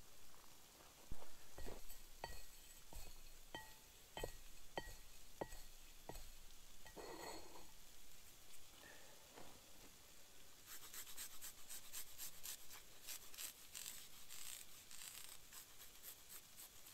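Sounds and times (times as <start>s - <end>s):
herbs rustling: 0.0s - 16.9s
ceramic plate clinking: 1.6s - 7.7s.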